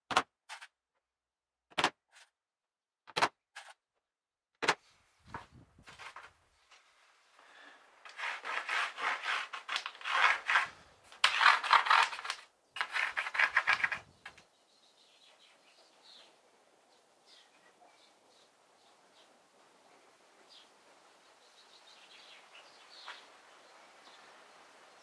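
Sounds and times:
wood scraping on plywood: 5.3s - 14.4s.

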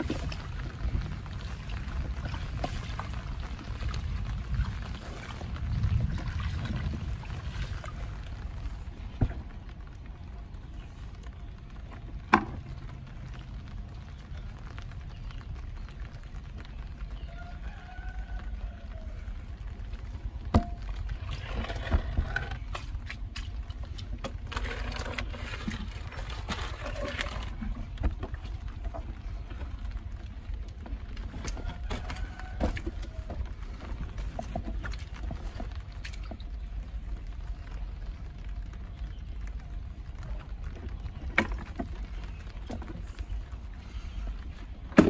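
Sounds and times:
microphone handling rumble: 0.0s - 9.7s
wind on microphone: 0.0s - 9.7s
shallow water splashing: 0.0s - 10.0s, 20.2s - 39.4s
steady low rumble: 0.0s - 45.0s.

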